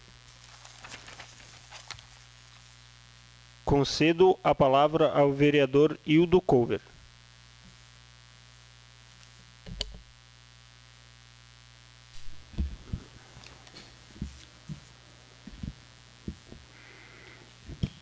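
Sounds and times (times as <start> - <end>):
electrical hum: 0.0 - 18.0
microphone handling thumps: 12.1 - 16.8, 17.6 - 18.0.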